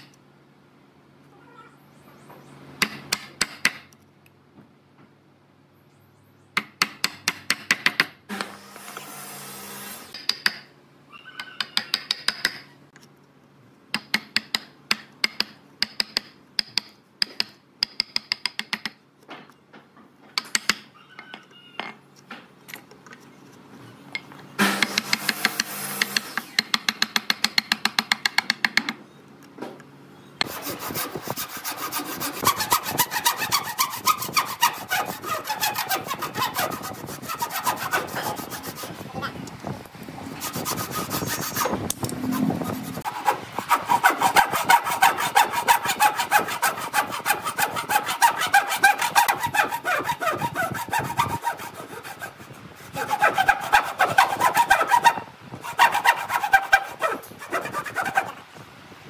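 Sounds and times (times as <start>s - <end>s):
hand saw cutting boards: 24.6s - 28.4s, 30.4s - 39.3s, 40.3s - 58.4s.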